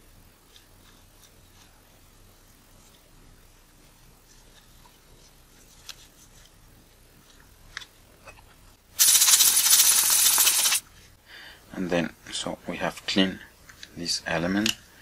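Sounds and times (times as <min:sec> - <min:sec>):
air blower hissing: 0:09.0 - 0:10.8.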